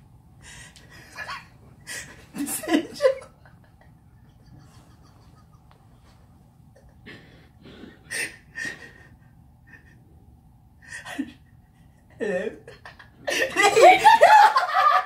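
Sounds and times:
stifled laughter: 1.2s - 5.8s.

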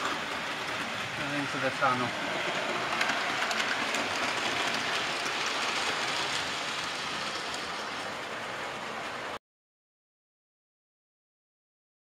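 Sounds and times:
model train wheels rattling on rail: 0.0s - 9.4s.

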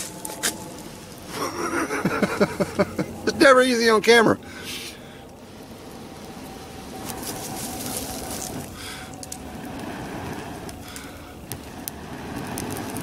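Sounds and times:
tinder crackling: 0.0s - 13.0s
man blowing hard breaths: 4.4s - 5.6s, 8.3s - 12.5s.

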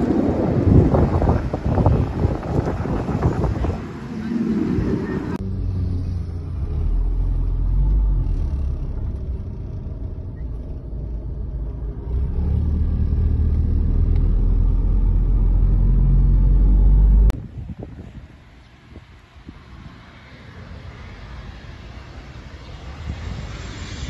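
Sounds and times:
outdoor ambience: 0.0s - 24.0s.

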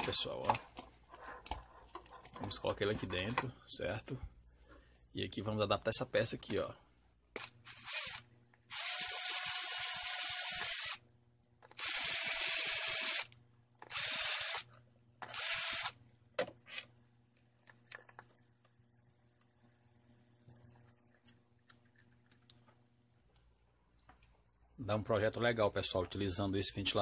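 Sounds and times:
electric drill whining on plastic: 7.4s - 11.0s, 11.6s - 16.0s.

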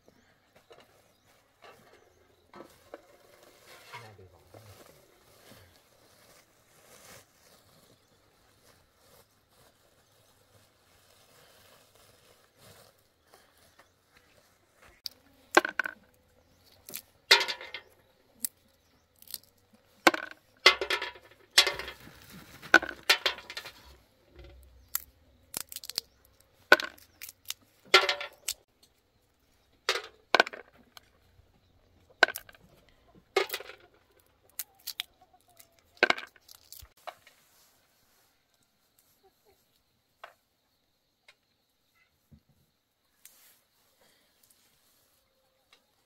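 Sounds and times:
hard objects knocking and clinking: 15.6s - 16.0s, 16.9s - 18.0s, 20.1s - 25.0s, 26.7s - 27.2s, 27.9s - 28.6s, 32.2s - 32.6s, 33.4s - 33.9s.

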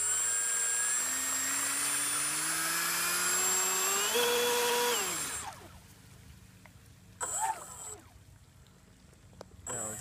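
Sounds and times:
electric motor whine: 0.0s - 5.8s, 7.2s - 8.1s.

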